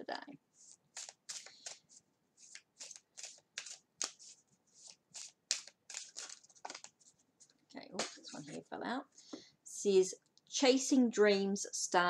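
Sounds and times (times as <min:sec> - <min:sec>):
cards being shuffled: 0:00.6 - 0:08.5.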